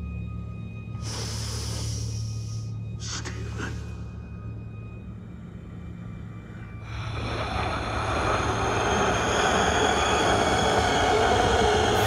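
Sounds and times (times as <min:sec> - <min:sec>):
rushing noise: 0:06.9 - 0:12.0.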